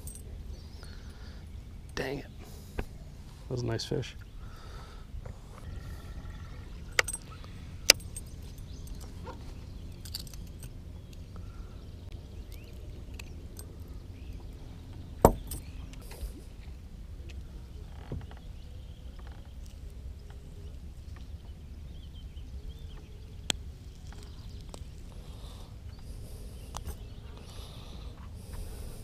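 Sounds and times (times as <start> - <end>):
steady low rumble: 0.0 - 29.0
small metal clicks and clinks: 6.9 - 9.2, 9.9 - 11.2.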